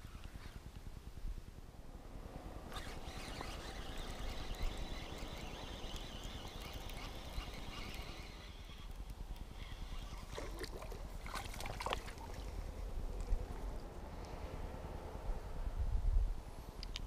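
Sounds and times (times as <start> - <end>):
fishing reel cranking: 2.7 - 10.4.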